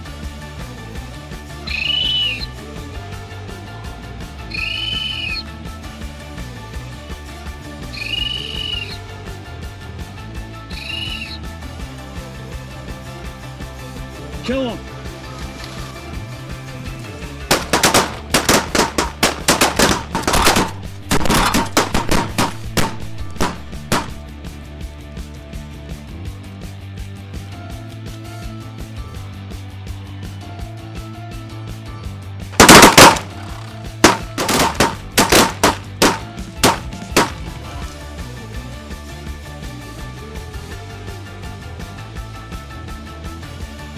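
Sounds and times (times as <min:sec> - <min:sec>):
background music: 0:00.0 - 0:43.9
shotguns firing: 0:17.5 - 0:24.2, 0:32.6 - 0:37.6.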